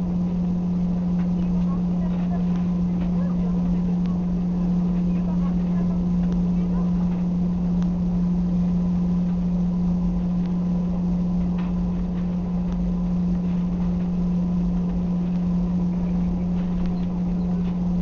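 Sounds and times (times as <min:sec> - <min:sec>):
constant cabin rumble: 0:00.0 - 0:18.0
jet engines humming: 0:00.0 - 0:18.0
faint clicks: 0:01.2 - 0:08.0, 0:11.3 - 0:17.9.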